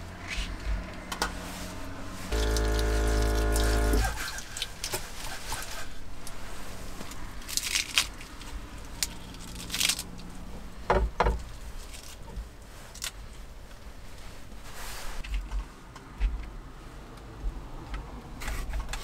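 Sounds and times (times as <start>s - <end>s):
lettuce leaves tearing: 7.0s - 10.3s.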